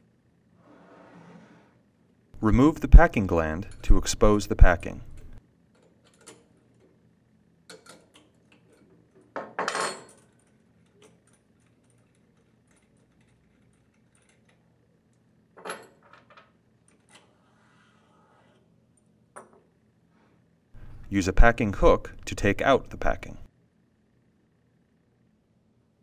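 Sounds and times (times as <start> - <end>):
metal parts and wrench clinking: 2.4 - 6.8, 7.7 - 14.6, 15.6 - 17.3.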